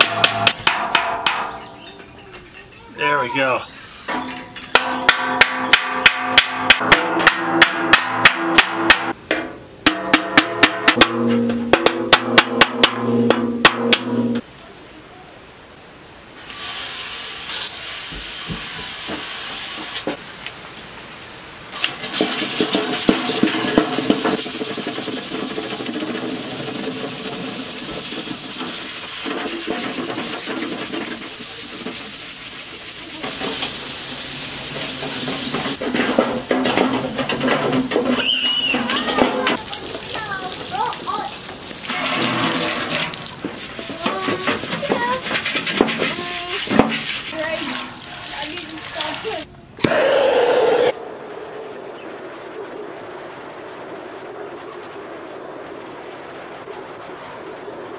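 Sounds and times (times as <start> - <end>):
hand scrubbing rusty steel: 21.8 - 39.6, 41.7 - 49.4.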